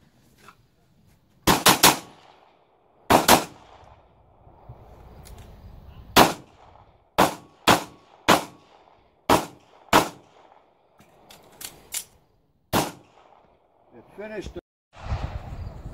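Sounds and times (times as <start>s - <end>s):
pistol shots: 1.4s - 4.0s, 6.2s - 10.8s, 12.7s - 13.7s.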